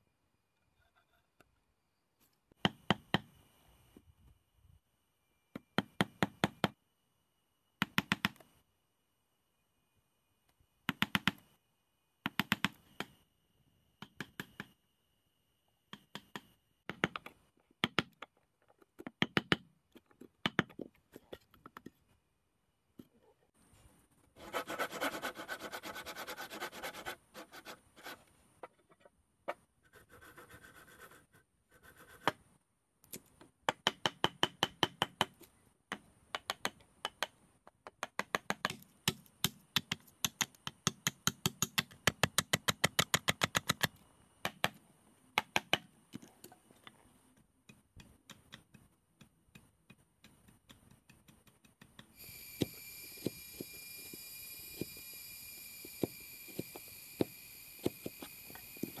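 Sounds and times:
hammer striking chisel: 55.9s - 59.0s.

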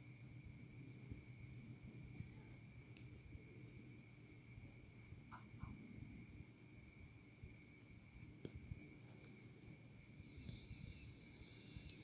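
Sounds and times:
soft hiss: 0.0s - 12.0s.

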